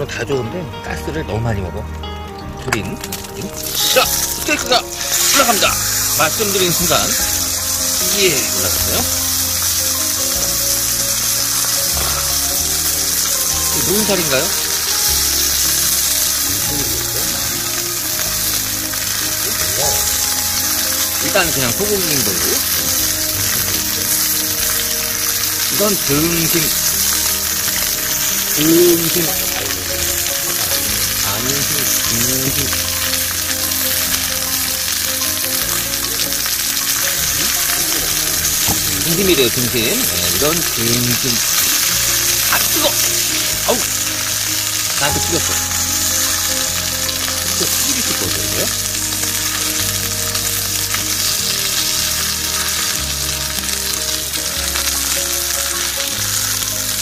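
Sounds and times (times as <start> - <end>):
steak sizzling in a pan: 0.0 - 57.0.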